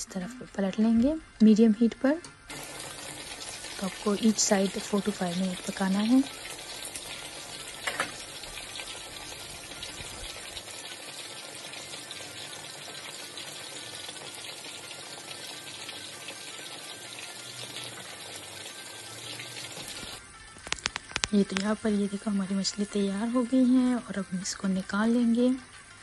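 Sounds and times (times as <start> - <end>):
fish frying in hot oil: 2.5 - 21.6.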